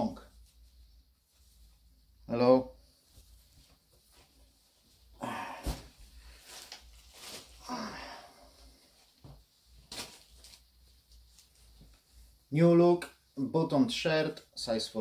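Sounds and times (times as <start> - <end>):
fabric rustling: 2.8 - 12.4.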